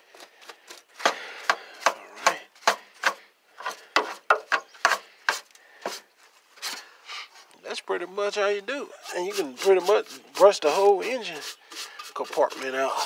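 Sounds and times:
paintbrush sweeping grit: 9.0 - 13.0.

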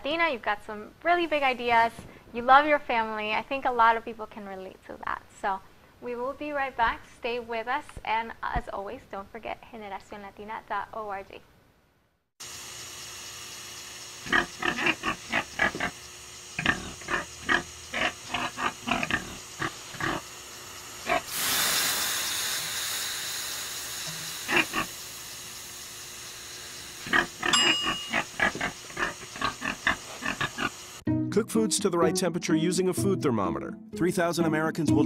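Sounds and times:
steam hissing from hot stones: 12.4 - 31.0
pig grunting: 14.2 - 16.0, 16.6 - 20.3, 24.5 - 24.9, 27.0 - 30.8.

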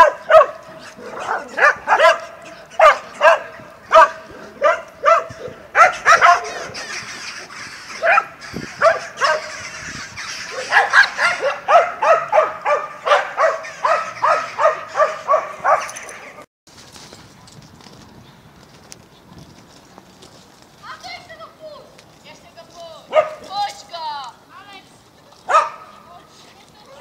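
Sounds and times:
dogs barking: 0.0 - 16.4, 23.1 - 23.5, 25.5 - 26.0.

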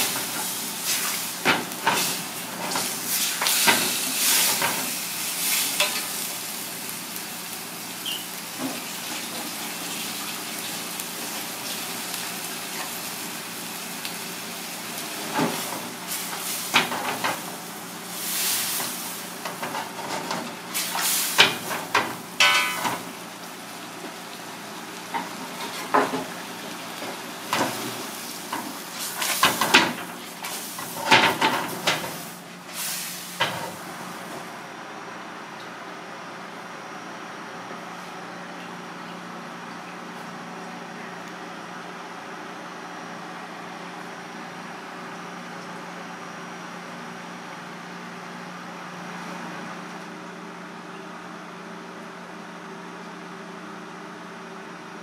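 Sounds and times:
prawns sizzling in a wok: 0.0 - 34.6.

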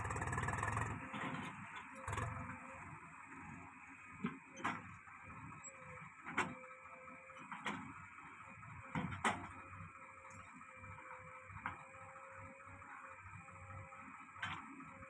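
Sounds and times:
diesel engines running: 0.0 - 15.0.

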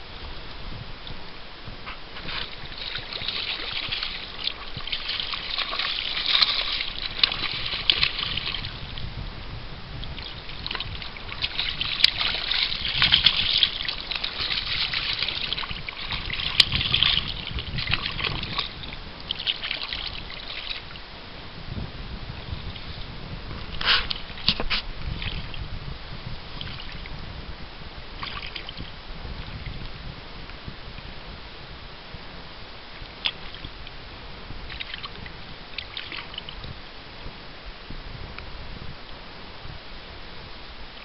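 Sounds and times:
fish splashing in water: 2.2 - 9.0, 10.0 - 21.0, 28.2 - 29.0, 34.6 - 36.8.

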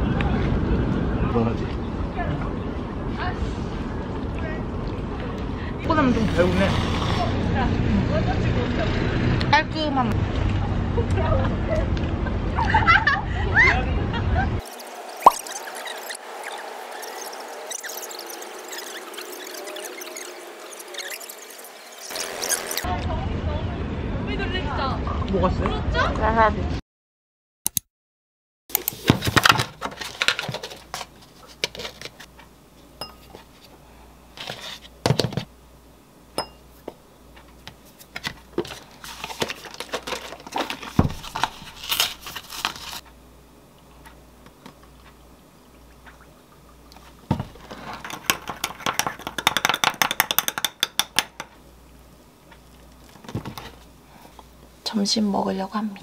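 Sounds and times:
spoon clinking against glass: 33.0 - 33.4, 36.4 - 36.6
knocks and rustles: 37.7 - 42.4, 53.2 - 53.8.

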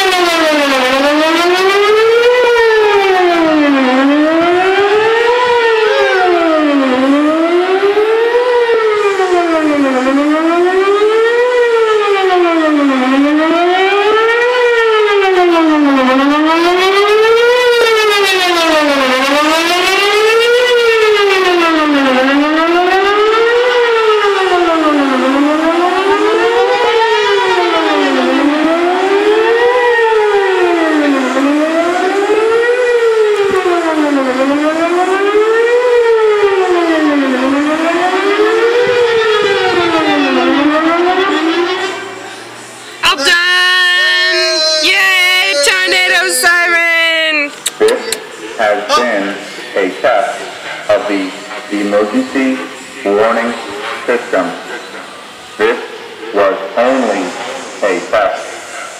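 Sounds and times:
tornado siren wailing: 0.0 - 57.3.

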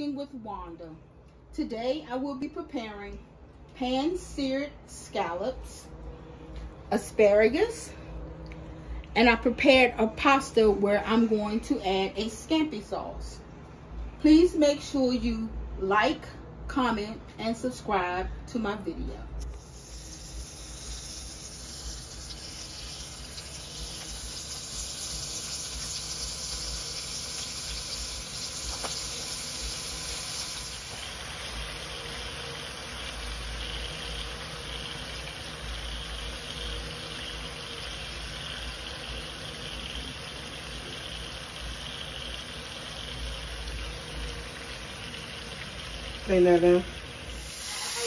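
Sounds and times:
scallops sizzling in butter: 19.6 - 48.0.

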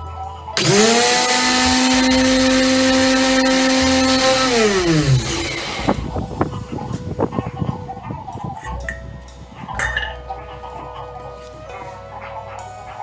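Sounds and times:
mixer grinder motor whine: 0.6 - 6.1.

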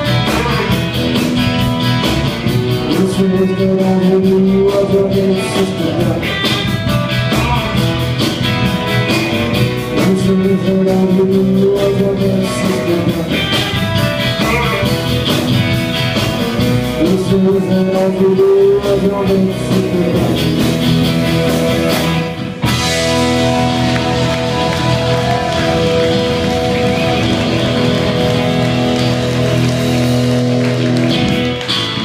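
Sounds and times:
acoustic guitar: 0.0 - 32.0
electric guitars: 0.0 - 32.0
steady drum beat: 0.0 - 32.0.

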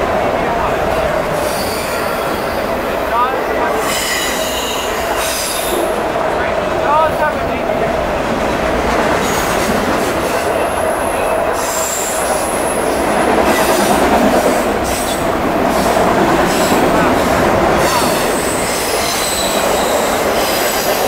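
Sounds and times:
freight train wheels rumbling: 0.0 - 21.0
high-pitched wheel squeal: 3.8 - 5.9, 17.8 - 20.9.

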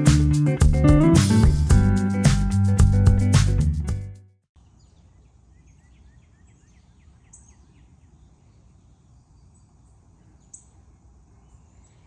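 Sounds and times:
birds chirping: 4.6 - 12.0.

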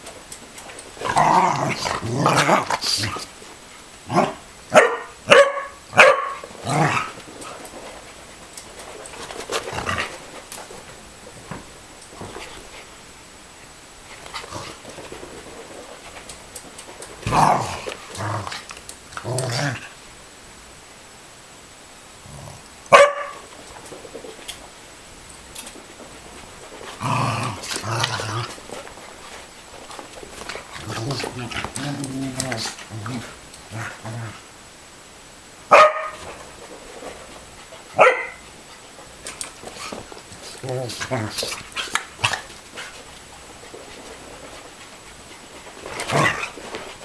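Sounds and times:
microphone hiss: 0.0 - 47.0
dogs growling: 0.7 - 3.4, 4.0 - 4.5, 6.4 - 10.8, 14.1 - 20.0, 22.2 - 22.9, 25.6 - 34.6, 36.2 - 47.0
dog barking: 4.2 - 6.4, 22.9 - 23.4, 35.7 - 36.2, 38.0 - 38.4.

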